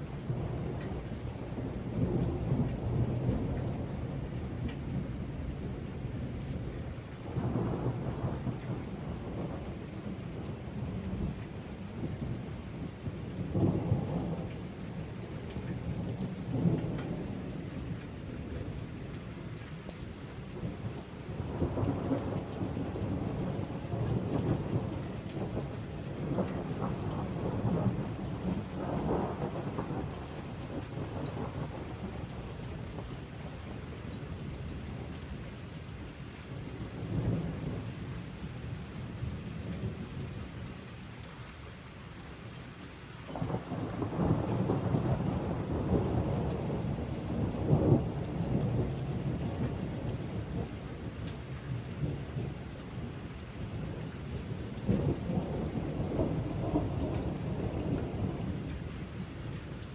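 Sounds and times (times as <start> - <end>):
thunder rumbling: 0.0 - 19.0, 20.6 - 35.1, 43.3 - 59.3
steady rain: 0.0 - 59.9.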